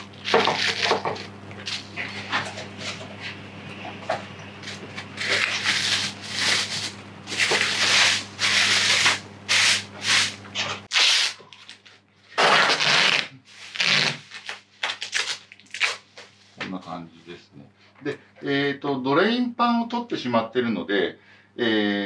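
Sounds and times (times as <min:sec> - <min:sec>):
plastic bag crinkling: 0:04.6 - 0:10.2
tape pulled off roll: 0:12.4 - 0:16.0.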